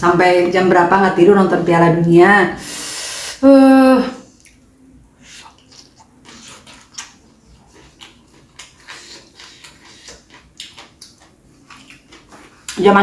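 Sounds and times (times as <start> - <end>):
crisp clicks and wet mouth noises: 4.4 - 4.6, 5.2 - 12.8
close chewing: 5.2 - 12.8.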